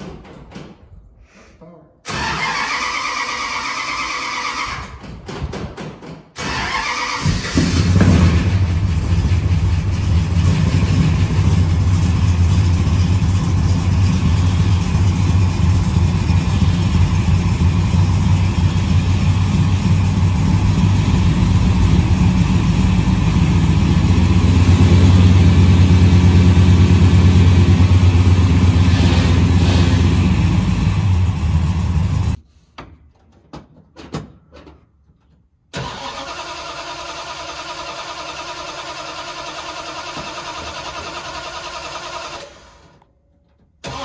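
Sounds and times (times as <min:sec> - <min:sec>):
car engine idling: 0:07.3 - 0:32.4
car engine running loudly: 0:07.5 - 0:32.4.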